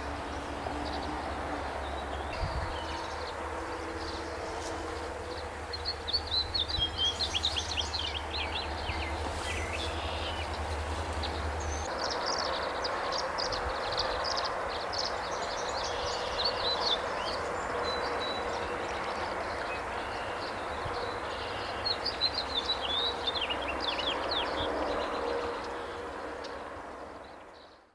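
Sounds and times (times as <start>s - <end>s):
swallows twittering: 5.3s - 26.6s.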